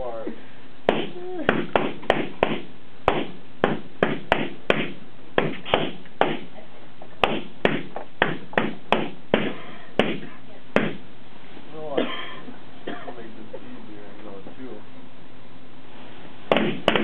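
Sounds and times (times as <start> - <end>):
balloons popping: 0.9 - 6.5, 7.2 - 11.0, 16.5 - 17.0.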